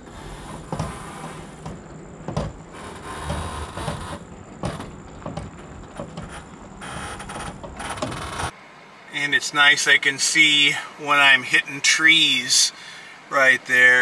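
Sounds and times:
tyres crunching on gravel: 0:00.0 - 0:06.8.

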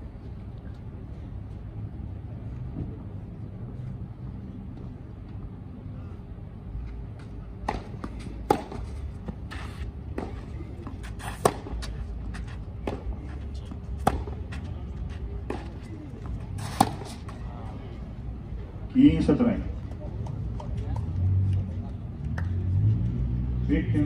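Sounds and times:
tennis ball bounces: 0:07.2 - 0:14.7, 0:15.4 - 0:17.4
racquet striking tennis ball: 0:07.6 - 0:09.0, 0:09.7 - 0:11.9, 0:12.8 - 0:13.2, 0:14.0 - 0:14.4, 0:16.6 - 0:17.4.

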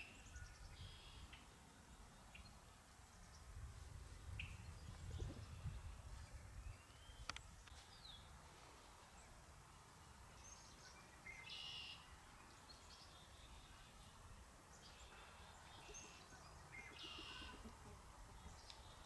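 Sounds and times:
faint high bird chirps: 0:00.0 - 0:03.5, 0:10.4 - 0:14.2, 0:14.8 - 0:17.7
gliding bird calls: 0:15.0 - 0:18.0.

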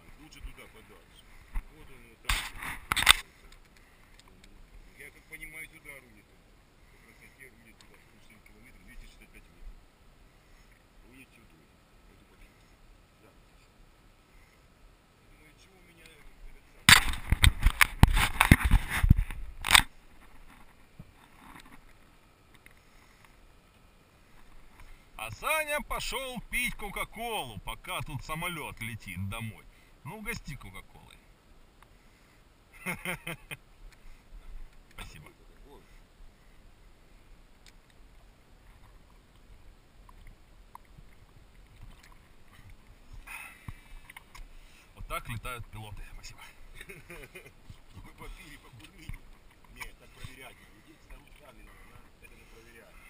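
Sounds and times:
faint steady hiss: 0:00.0 - 0:53.0
crunchy scrape: 0:02.3 - 0:03.4, 0:16.9 - 0:21.9
brief rustle: 0:16.9 - 0:23.3
wind rumble on microphone: 0:17.1 - 0:19.6.

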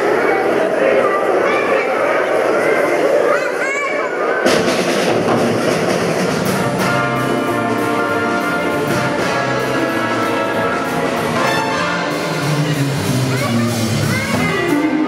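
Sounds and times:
drum kit steady beat: 0:04.4 - 0:15.0
jazz big band horns: 0:04.6 - 0:15.0.

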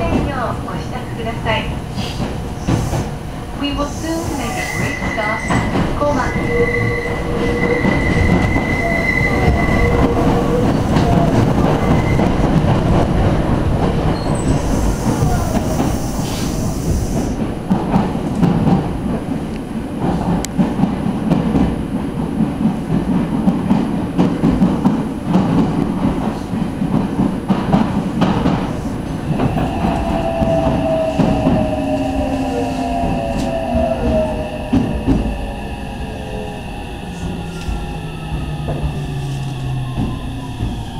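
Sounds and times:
train wheels rumbling on rails: 0:00.0 - 0:40.9
train motor whine: 0:29.0 - 0:40.9.

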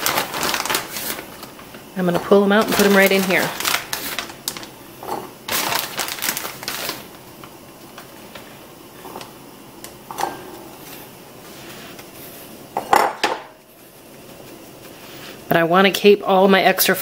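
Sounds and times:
plastic bag rustling: 0:00.0 - 0:09.4.

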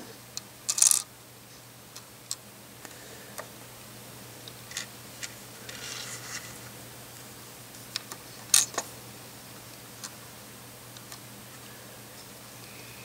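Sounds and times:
faint steady hum: 0:00.0 - 0:13.0
plastic pieces scraping and clicking: 0:00.7 - 0:01.0.

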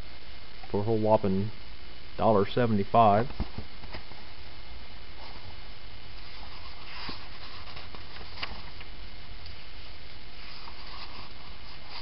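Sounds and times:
low hum and hiss: 0:00.0 - 0:12.0
paper rustling and ticking: 0:06.2 - 0:08.9.

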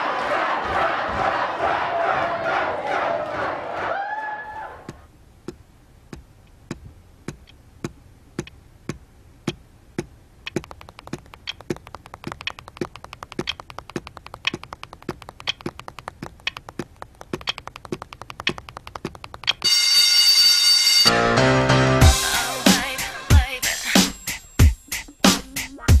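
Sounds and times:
foot tapping: 0:04.8 - 0:19.7
pencil tapping: 0:04.9 - 0:19.7.

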